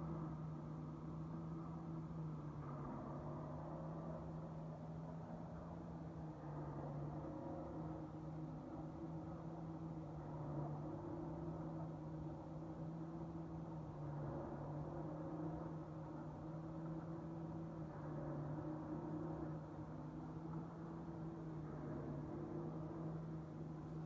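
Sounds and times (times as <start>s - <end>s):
constant rumbling background: 0.0s - 24.0s
steady low hum: 0.0s - 24.0s.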